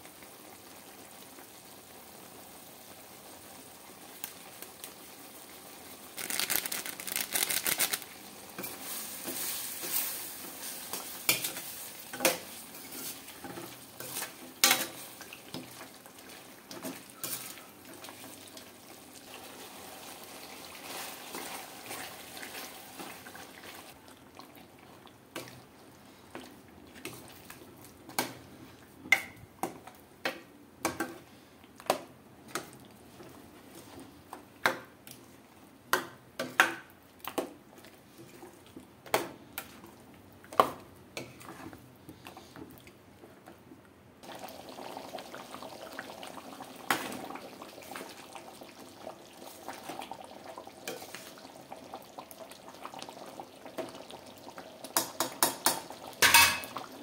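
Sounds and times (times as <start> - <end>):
hiss of cooking liquid: 7.9 - 15.5
spoon knocking and scraping pot: 55.0 - 56.8.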